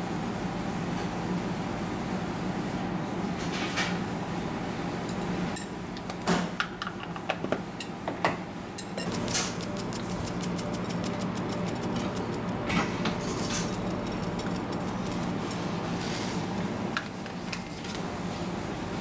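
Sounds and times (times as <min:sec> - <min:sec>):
steady mechanical hum: 0:00.0 - 0:19.0
sharp clicks and knocks: 0:09.0 - 0:15.4.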